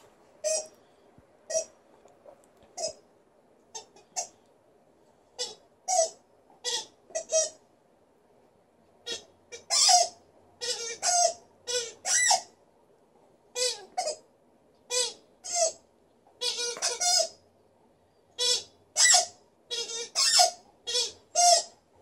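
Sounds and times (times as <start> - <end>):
squeaky toy ball squeaking: 0.4 - 0.7, 1.5 - 1.7, 2.8 - 3.0, 5.4 - 7.6, 9.0 - 12.5, 13.6 - 14.2, 14.9 - 15.8, 16.4 - 17.4, 18.4 - 21.7.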